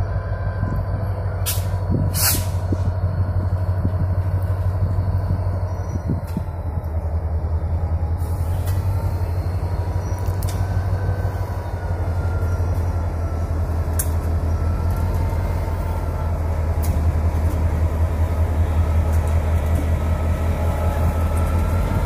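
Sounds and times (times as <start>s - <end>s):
diesel locomotive engine throbbing: 0.0s - 22.0s
short hisses: 2.2s - 2.6s.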